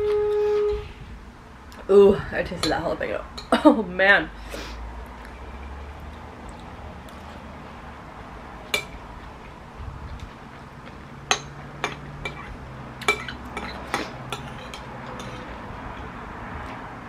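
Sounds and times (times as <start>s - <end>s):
metal spoon clinking against a bowl: 11.3s - 15.5s.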